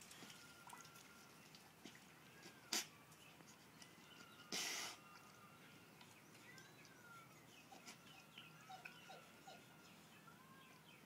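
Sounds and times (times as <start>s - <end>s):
faint high chirps: 2.3s - 11.0s.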